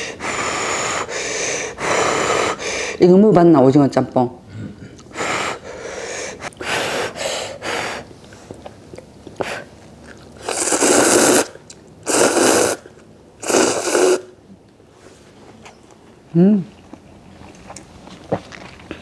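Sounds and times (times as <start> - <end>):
person slurping noodles: 10.4 - 14.4.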